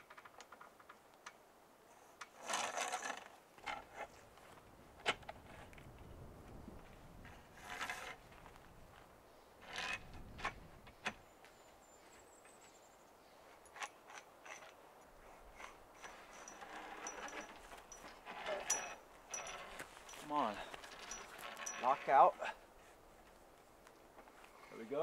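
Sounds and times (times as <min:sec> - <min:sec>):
scraping rustles: 0:06.8 - 0:08.8, 0:09.6 - 0:11.2, 0:13.4 - 0:23.5
gear clicking and rattling: 0:13.6 - 0:22.2.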